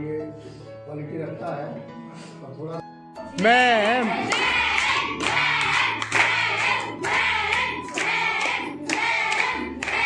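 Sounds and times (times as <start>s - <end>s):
hands clapping: 3.3s - 10.0s
voices singing: 3.4s - 10.0s.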